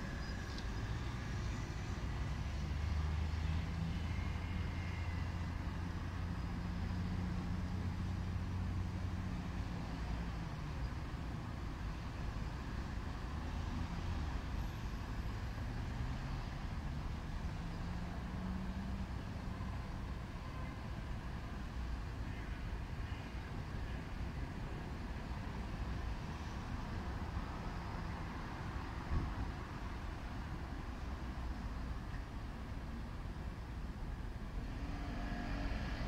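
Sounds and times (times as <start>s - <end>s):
cars driving past: 0.0s - 10.7s, 34.5s - 36.0s.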